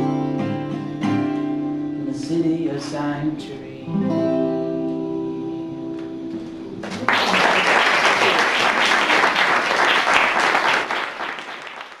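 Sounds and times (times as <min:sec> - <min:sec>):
audience applause: 0:06.8 - 0:12.0.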